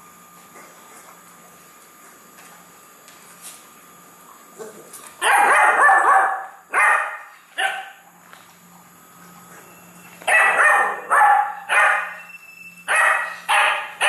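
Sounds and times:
puppy barking: 0:05.2 - 0:08.0, 0:10.3 - 0:12.2, 0:12.9 - 0:14.0.

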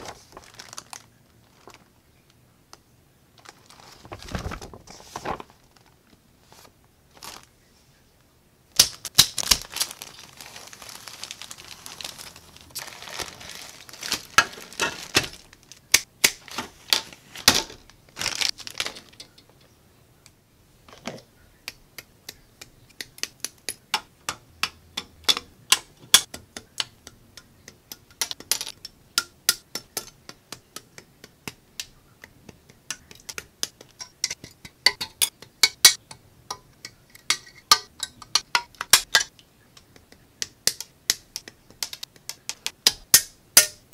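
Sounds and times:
plastic bags crinkling: 0:00.0 - 0:01.9, 0:03.4 - 0:07.5, 0:08.8 - 0:19.4
plastic sprues clicking: 0:37.2 - 0:43.0.

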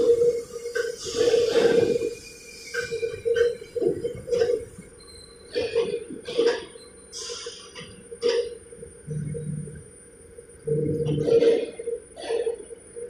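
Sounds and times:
machine hum with high whine: 0:00.0 - 0:13.0
deeper hum: 0:07.9 - 0:13.0.

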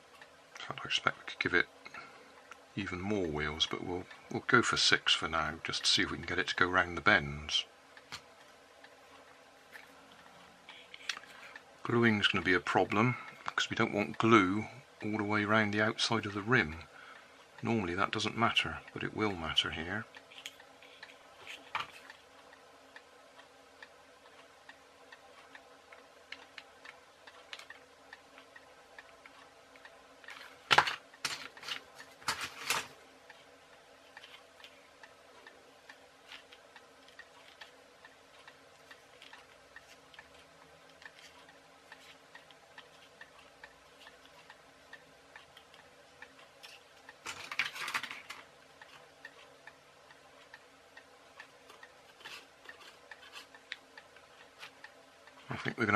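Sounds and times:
faint regular ticking: 0:00.0 - 0:55.9
low steady hum: 0:00.0 - 0:55.9
plastic parts clicking: 0:47.2 - 0:48.5.

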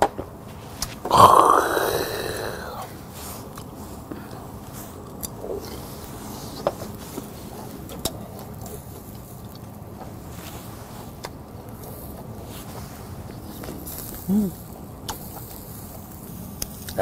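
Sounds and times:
low background hiss: 0:00.0 - 0:17.0
metal tongs clicking on grill: 0:15.0 - 0:15.9, 0:16.6 - 0:17.0.

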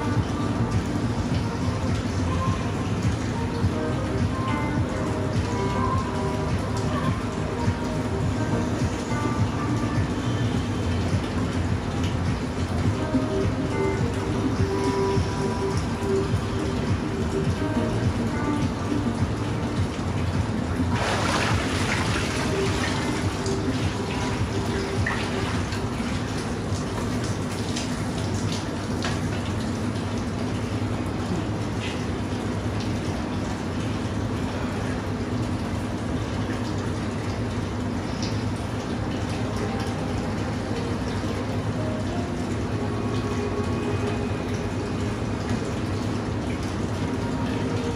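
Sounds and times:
running gurgling water: 0:00.0 - 0:47.9
water splashing in tub: 0:00.8 - 0:34.3.

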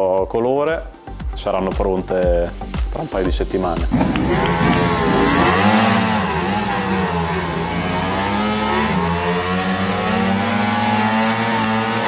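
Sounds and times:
motorcycle engines idling: 0:03.9 - 0:09.4.

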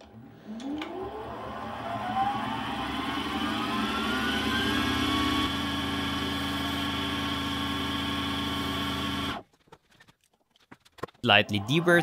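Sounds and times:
lathe motor humming with whine: 0:00.5 - 0:09.4.

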